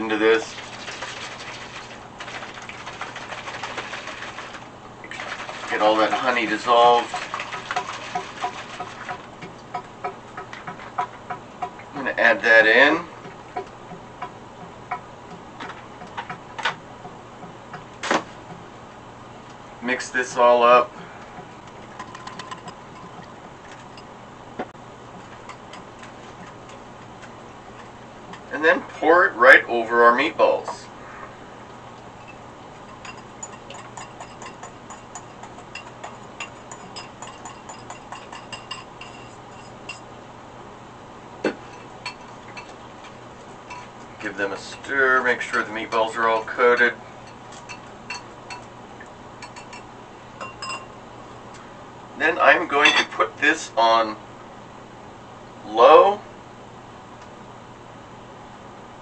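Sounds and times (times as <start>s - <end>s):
whisk tapping against bowl: 32.9s - 40.0s.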